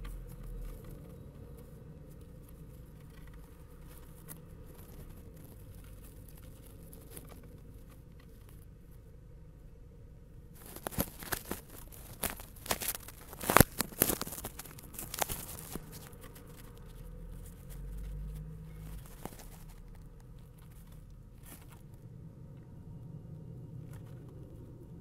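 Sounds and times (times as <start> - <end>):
birds scratching on nest material: 0.0 - 8.8, 10.5 - 22.0
low rumble: 11.4 - 25.0.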